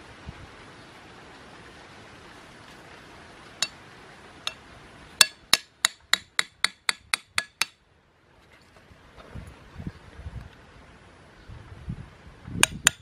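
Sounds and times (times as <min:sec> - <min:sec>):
machete striking a stake: 0:05.2 - 0:07.8, 0:12.6 - 0:13.0.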